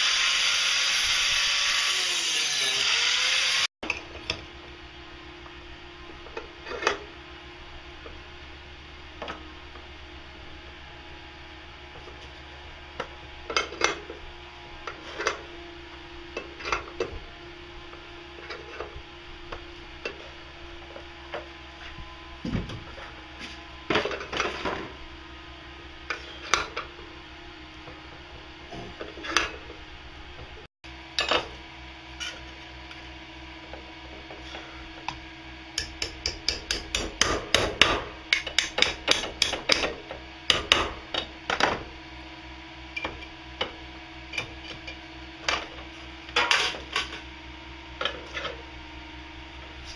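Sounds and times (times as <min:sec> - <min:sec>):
sharp metal-on-metal taps: 0:35.8 - 0:39.9.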